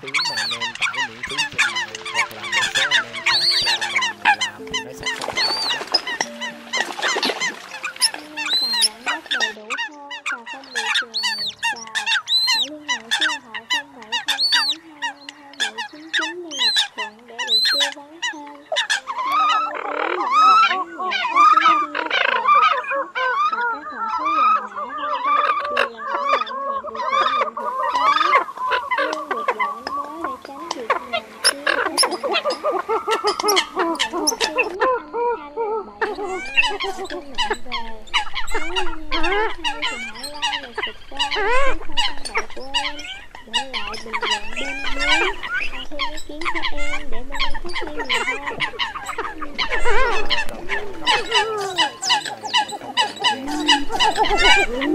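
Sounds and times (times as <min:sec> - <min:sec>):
coots honking calls: 0:00.0 - 0:54.9.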